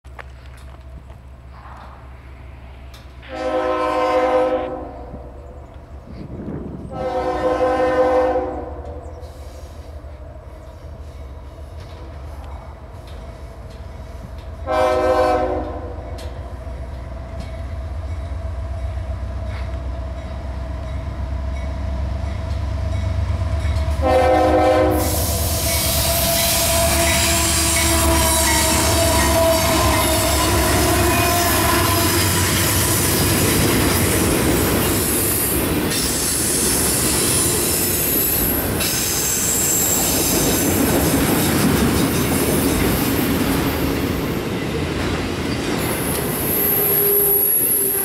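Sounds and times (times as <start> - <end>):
locomotive rumble: 0.1 - 48.0
locomotive air horn blasts: 3.2 - 5.3, 6.9 - 9.3, 14.6 - 16.1, 23.9 - 33.1, 46.8 - 48.0.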